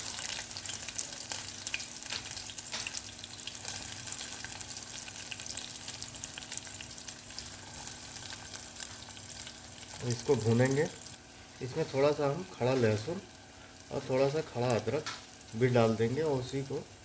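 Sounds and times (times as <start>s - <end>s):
onions sizzling in oil: 0.0s - 17.0s.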